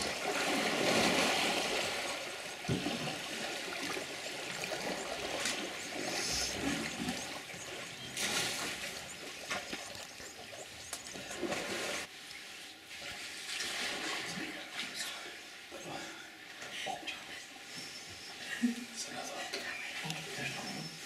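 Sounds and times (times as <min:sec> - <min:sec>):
water splashes: 0:00.0 - 0:12.2, 0:12.9 - 0:15.2
water trickling and sloshing: 0:00.0 - 0:21.0.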